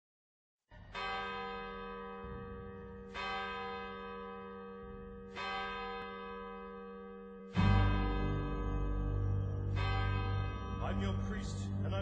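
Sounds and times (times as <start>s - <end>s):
bell tolling: 7.5s - 12.0s.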